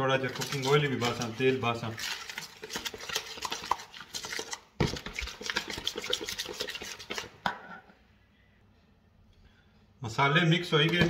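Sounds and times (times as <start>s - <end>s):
spoon stirring in plastic bowl: 0.0s - 7.5s.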